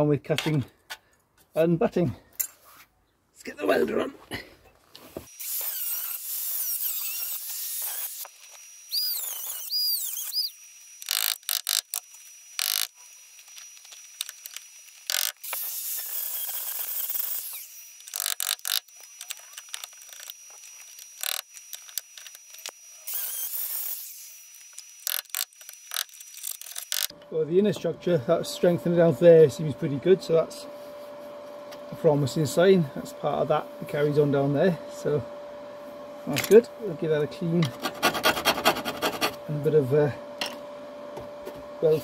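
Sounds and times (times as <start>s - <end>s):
angle grinder cutting steel: 5.3s - 27.2s.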